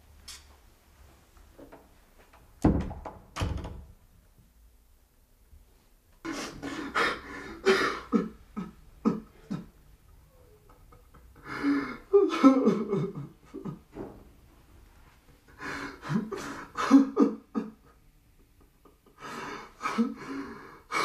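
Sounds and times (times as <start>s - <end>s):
door shutting with heavy thuds: 2.6s - 3.9s.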